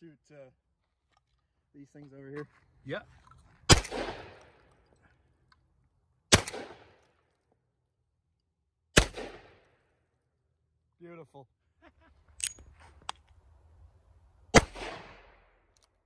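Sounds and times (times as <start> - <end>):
gunshots with echo: 3.7 - 4.6, 6.3 - 7.0, 9.0 - 9.7, 14.5 - 15.4.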